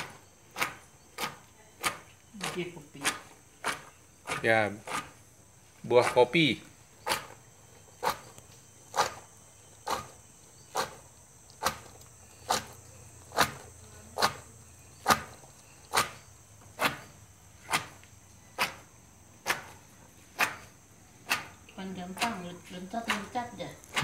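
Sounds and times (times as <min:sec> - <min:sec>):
wooden pestle pounding in mortar: 0:00.0 - 0:05.2, 0:20.4 - 0:24.0.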